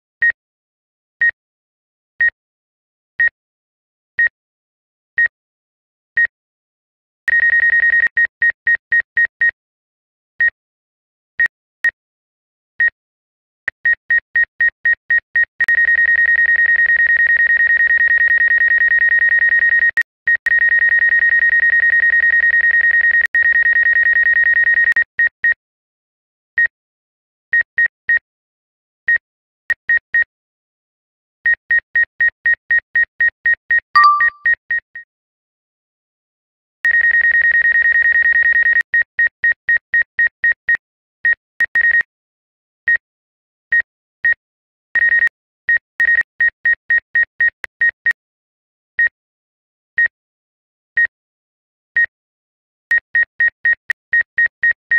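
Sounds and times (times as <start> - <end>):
two-note alert chirp: 34.0 - 34.4.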